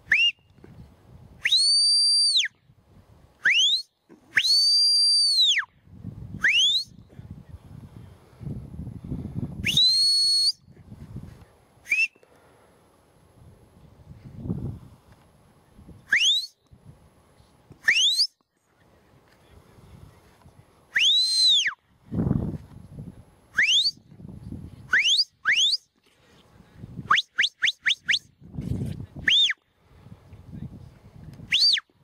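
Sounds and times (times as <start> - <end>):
shepherd's whistle commands: 0.1 - 0.5, 1.4 - 2.5, 3.4 - 5.7, 6.4 - 7.0, 9.6 - 10.7, 11.9 - 12.2, 16.1 - 16.6, 17.8 - 18.4, 23.6 - 24.0, 24.9 - 25.9, 29.3 - 29.6, 31.5 - 31.9.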